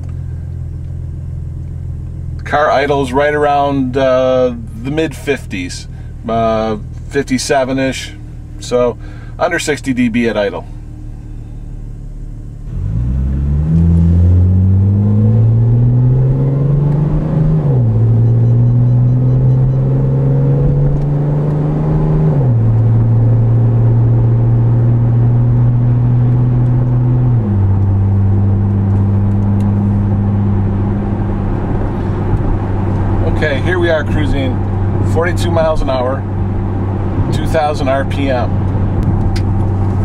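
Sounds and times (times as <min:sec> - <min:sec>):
car engine accelerating through gears: 0:10.7 - 0:40.0.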